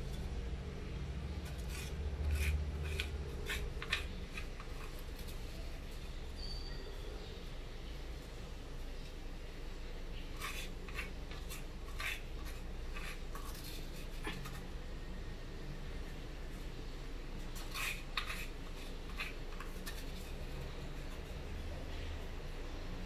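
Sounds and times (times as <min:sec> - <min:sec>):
spoon scraping stone mortar: 0:01.3 - 0:06.8, 0:10.1 - 0:14.8, 0:17.5 - 0:21.4.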